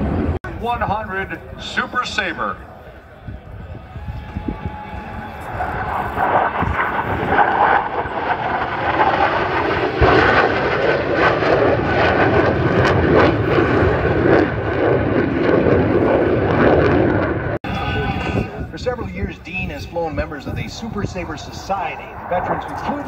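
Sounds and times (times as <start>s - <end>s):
jet flying past: 0.0s - 23.0s.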